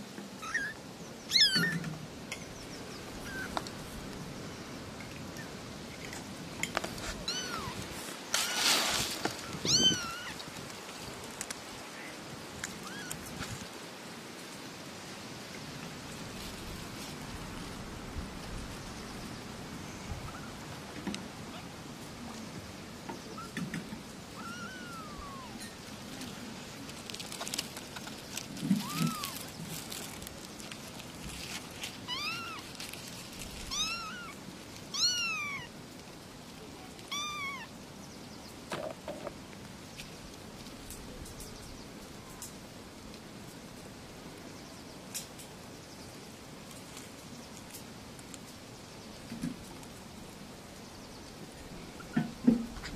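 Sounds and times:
kitten meowing: 0.4s - 1.8s, 7.2s - 7.8s, 9.4s - 10.4s, 12.8s - 13.2s, 24.4s - 25.6s, 28.8s - 29.4s, 32.1s - 32.6s, 33.7s - 35.7s, 37.1s - 37.7s.

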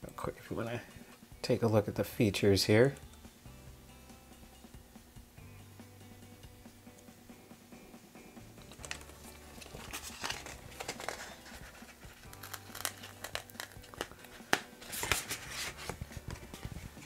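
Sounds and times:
packaging crinkling and rustling: 8.7s - 16.0s
plastic case clicks and scrapes: 8.7s - 16.0s.

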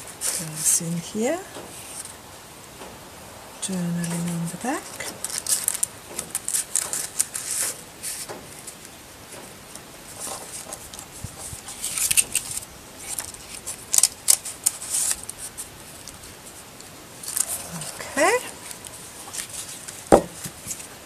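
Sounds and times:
paper rustling and crinkling: 5.1s - 8.9s, 9.7s - 21.0s.

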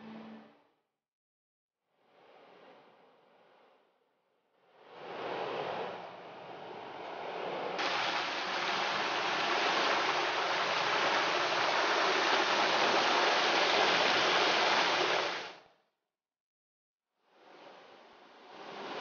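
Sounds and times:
running and falling water: 7.8s - 15.6s.

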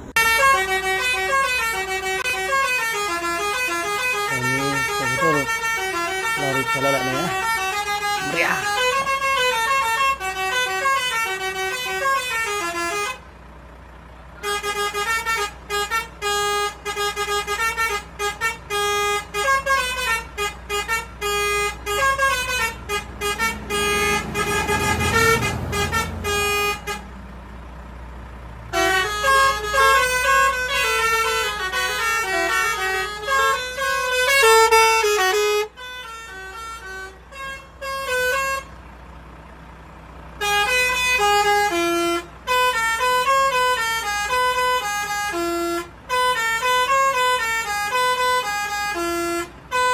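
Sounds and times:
musical air horn playing a tune: 0.2s - 13.2s, 14.4s - 27.1s, 28.7s - 38.7s, 40.4s - 49.9s.

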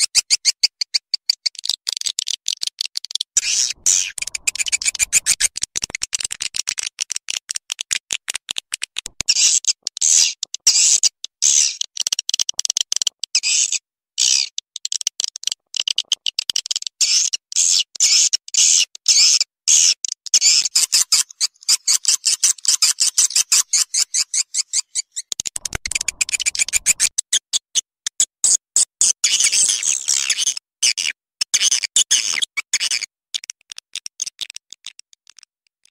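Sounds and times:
swiftlet chirps and twittering: 3.4s - 5.5s, 25.6s - 27.1s.

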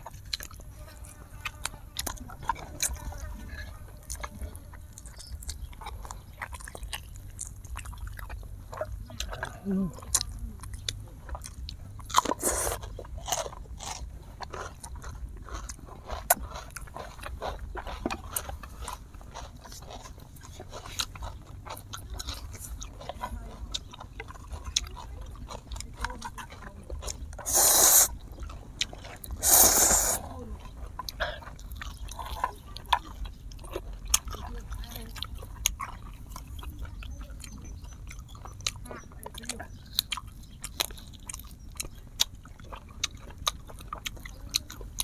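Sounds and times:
close chewing and biting: 0.0s - 45.0s
slurping noodles: 12.2s - 12.8s, 27.4s - 28.2s, 29.3s - 30.3s.

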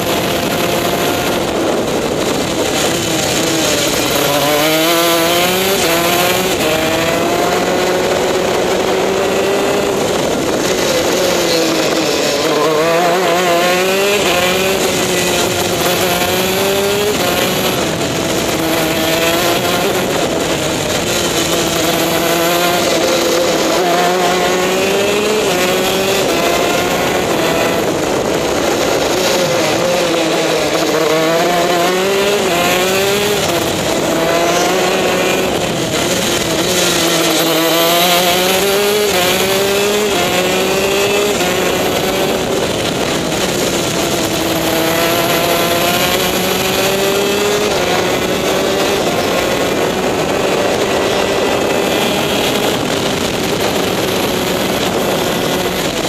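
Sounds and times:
kart engine revving: 0.0s - 56.0s.

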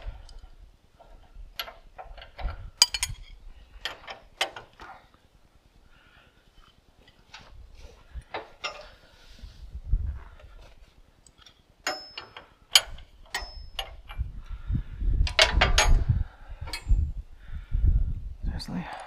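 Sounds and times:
metal tools clinking: 1.0s - 4.8s, 8.3s - 9.0s, 11.2s - 14.2s.

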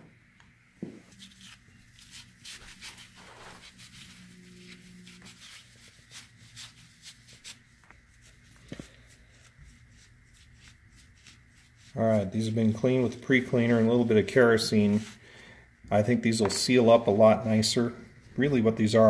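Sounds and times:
rag rubbing on rubber cover: 1.1s - 15.2s.

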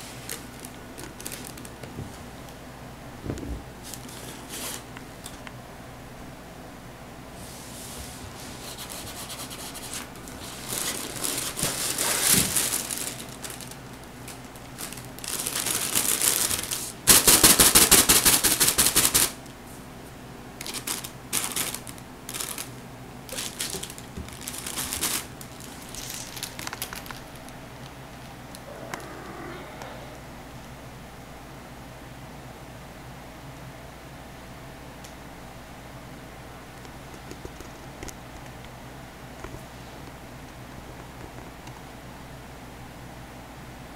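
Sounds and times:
crinkly vinyl tunnel rustling: 0.0s - 2.5s, 3.7s - 5.0s, 7.7s - 19.8s, 20.6s - 28.5s.

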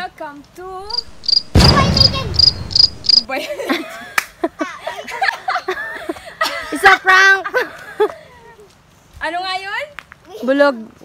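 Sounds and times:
insect chirping: 0.8s - 3.3s
loud burst of noise: 1.0s - 3.3s
people laughing: 3.3s - 8.3s.

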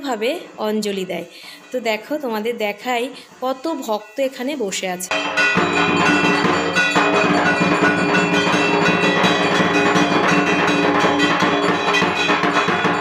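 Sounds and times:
percussion beat: 5.1s - 13.0s
ringing bells: 5.1s - 13.0s.

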